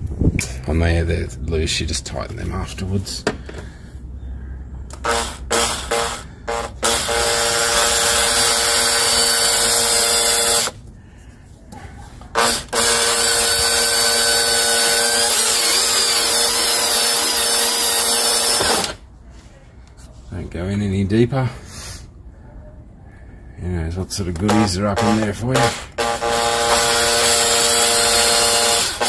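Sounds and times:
cordless drill whining: 4.9s - 10.8s, 12.3s - 19.0s, 24.5s - 29.0s
drill trigger blips: 4.9s - 10.8s, 12.3s - 19.0s, 24.4s - 29.0s.

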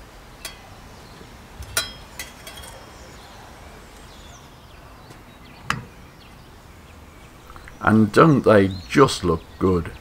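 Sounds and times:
metal dish clinking on metal: 0.4s - 0.7s, 1.6s - 3.3s.

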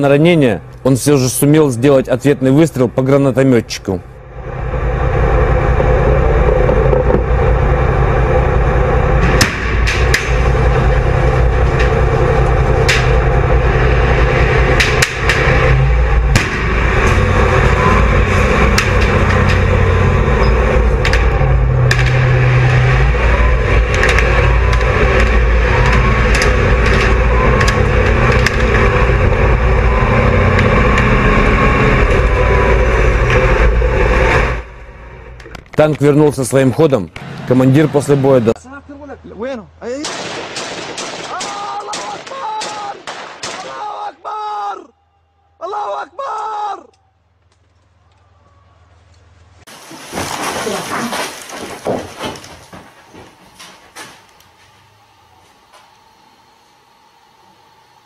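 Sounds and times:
tank engine running: 0.0s - 41.2s
sharp cracks: 9.2s - 10.6s, 12.8s - 13.4s, 14.6s - 17.4s, 18.5s - 19.9s, 21.0s - 22.8s, 40.0s - 44.0s.

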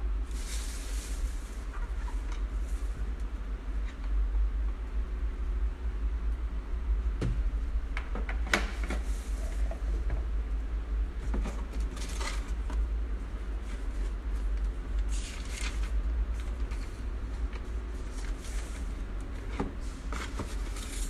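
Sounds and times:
steady low hum: 0.0s - 21.0s
rustling in cardboard box: 0.2s - 3.2s, 13.4s - 21.0s.

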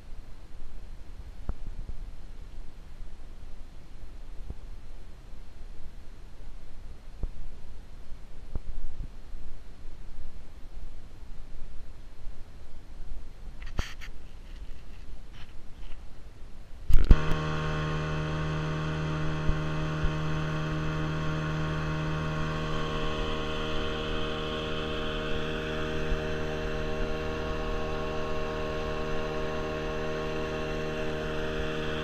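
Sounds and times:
outboard motor drone: 16.9s - 32.0s.

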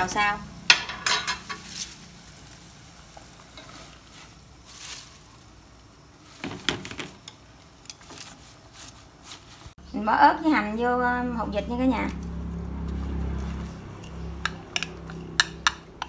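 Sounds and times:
water boiling in a pot: 0.0s - 9.8s
leaves rustling: 1.4s - 9.8s, 11.9s - 15.3s.

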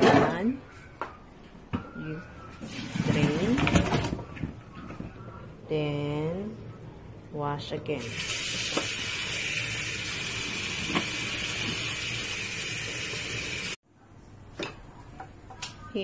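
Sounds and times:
tap water running into sink: 8.0s - 13.8s.

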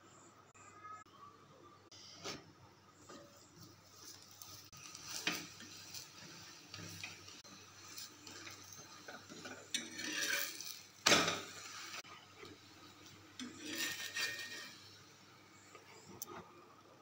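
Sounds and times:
spatula scraping and tapping pan: 3.0s - 15.0s.

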